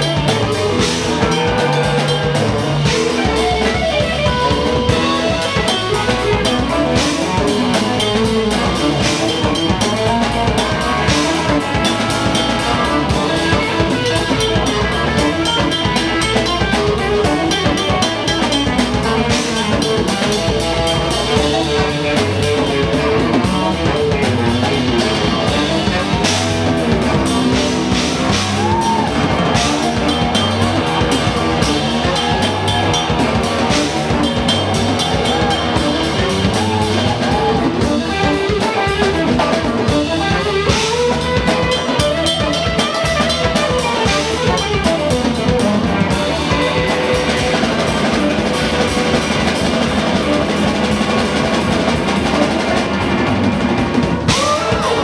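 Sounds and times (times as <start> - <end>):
drum kit: 0.0 - 55.0
electric guitar: 0.0 - 55.0
keyboard: 0.0 - 55.0
saxophone: 0.0 - 55.0.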